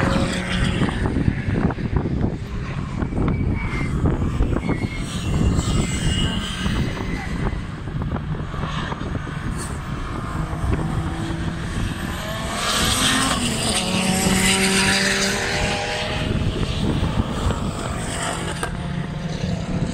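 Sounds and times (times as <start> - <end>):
faint cars running: 0.0 - 19.9
race car passing at speed: 0.0 - 19.9.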